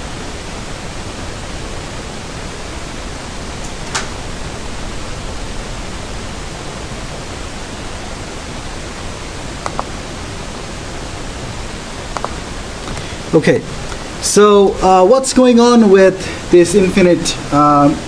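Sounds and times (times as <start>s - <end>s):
background hiss: 0.0s - 18.0s
sharp clicks: 9.6s - 9.9s, 12.1s - 13.0s.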